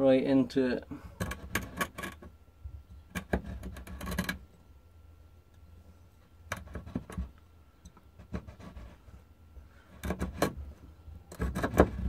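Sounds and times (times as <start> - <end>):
glass cutter scoring bottle: 11.2 - 12.0.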